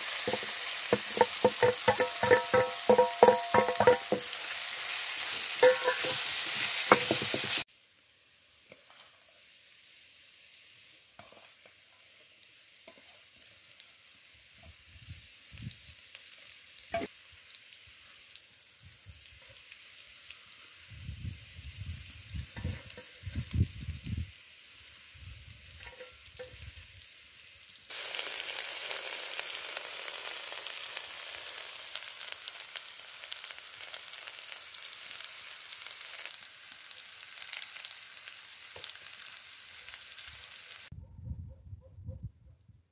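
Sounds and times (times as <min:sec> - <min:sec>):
potatoes sizzling in oil: 0:00.0 - 0:40.9.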